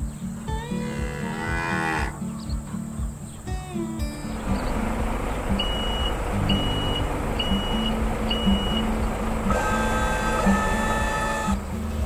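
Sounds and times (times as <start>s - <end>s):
higher steady tones: 0.0s - 12.0s
cartoon engine drone: 4.3s - 11.6s
high beeps: 5.5s - 11.2s.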